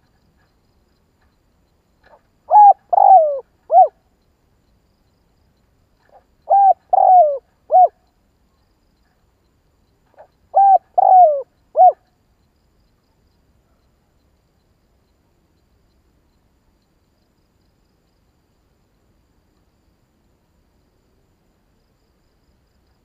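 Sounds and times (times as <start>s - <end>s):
dove cooing: 2.5s - 4.0s, 6.1s - 8.0s, 10.5s - 12.0s.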